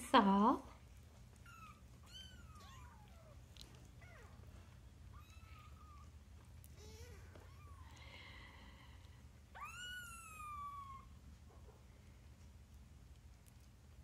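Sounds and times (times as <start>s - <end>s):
kittens mewing: 1.4s - 4.5s, 9.6s - 11.1s.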